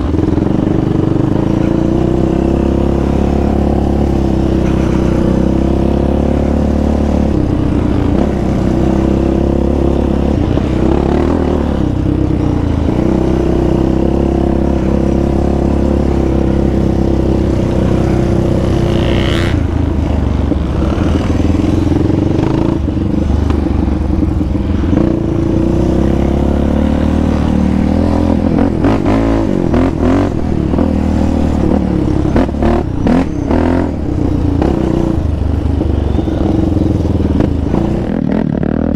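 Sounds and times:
quad engine revving: 0.0 - 38.9.

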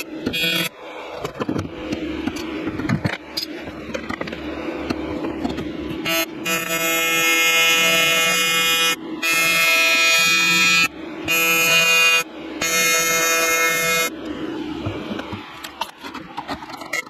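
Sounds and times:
welding arc buzzing: 0.0 - 0.8, 5.8 - 14.1.

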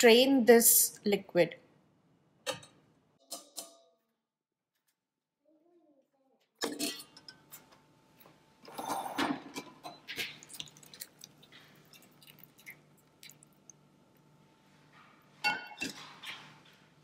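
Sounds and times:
utensils clinking on cookware: 6.6 - 7.7, 15.4 - 16.6.

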